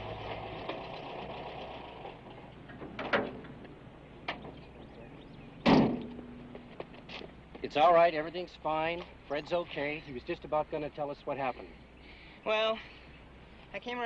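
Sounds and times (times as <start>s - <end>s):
car engine hum: 0.0s - 13.7s
car door slamming: 5.6s - 6.2s.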